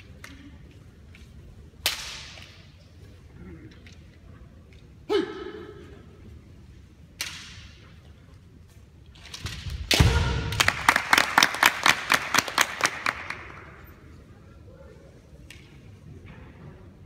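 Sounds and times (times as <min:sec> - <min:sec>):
sharp crack: 0:01.8 - 0:02.6.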